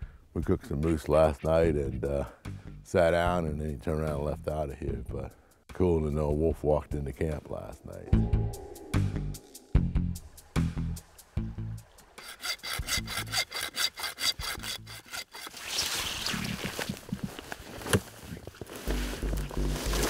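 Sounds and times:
hand saw cutting: 12.2 - 16.6.

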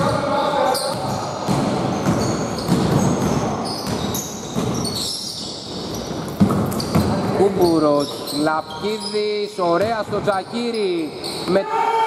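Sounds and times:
sneakers squeaking: 0.0 - 11.7
basketball bouncing on hardwood: 0.9 - 5.0, 6.3 - 7.3, 9.7 - 10.4.

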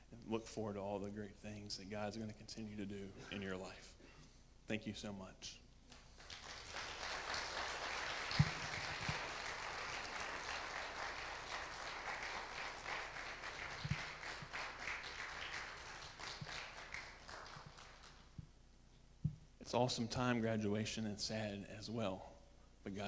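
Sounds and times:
congregation applauding: 5.9 - 18.4.

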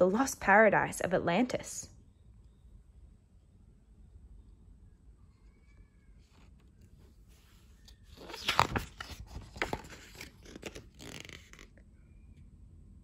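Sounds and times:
paper page rustling: 6.2 - 11.8.

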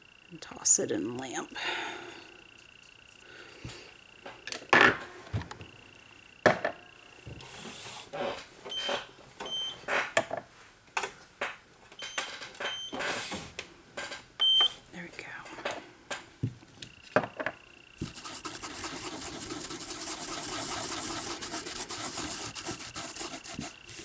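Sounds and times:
thin high whine: 16.8 - 24.0.

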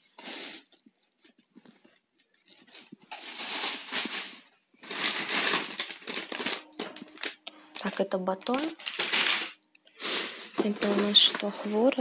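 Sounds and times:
plastic bag rustling: 0.0 - 12.0.

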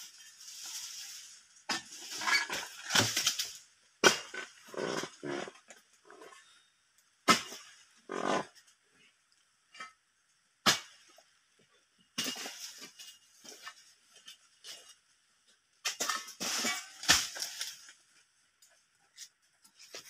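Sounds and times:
palm fronds rustling and crashing: 0.0 - 3.7, 16.0 - 18.0.

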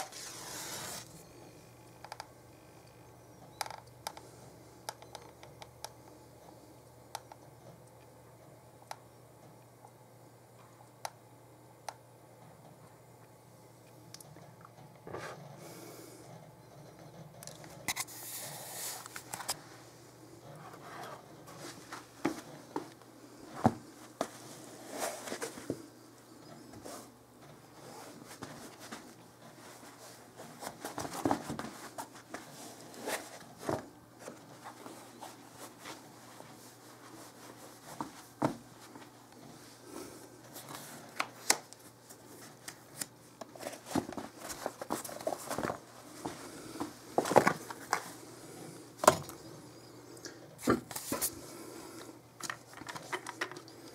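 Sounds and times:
shoes rustling and scraping: 27.8 - 39.2, 43.5 - 48.1.

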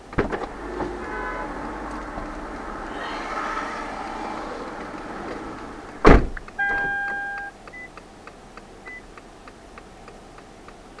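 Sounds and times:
car door shutting: 0.0 - 7.4
turn-signal relay ticking: 6.3 - 11.0
electronic beep: 6.6 - 7.9
short high beeps: 6.6 - 7.9.

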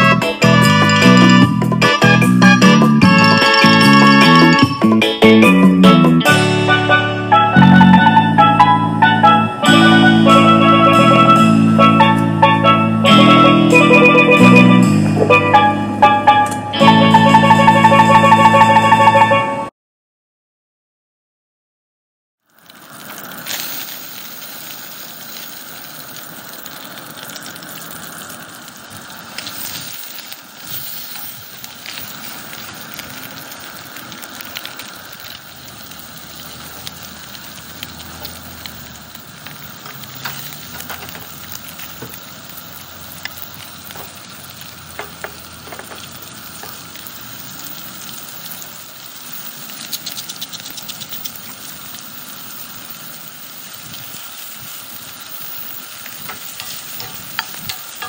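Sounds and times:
fish sizzling in a skillet: 22.4 - 58.0.

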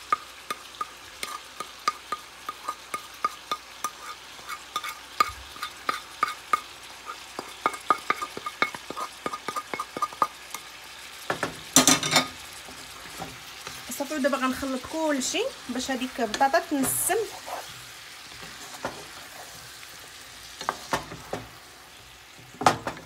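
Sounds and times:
faint sizzle: 0.0 - 23.0
cookware clatter: 7.4 - 10.3, 11.3 - 12.4.

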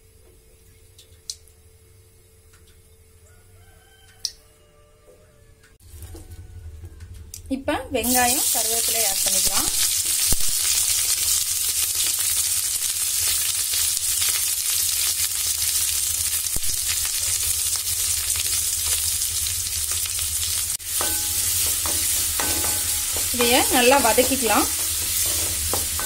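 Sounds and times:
onions sizzling in hot oil: 8.0 - 26.0
spatula scraping pan: 20.9 - 26.0.

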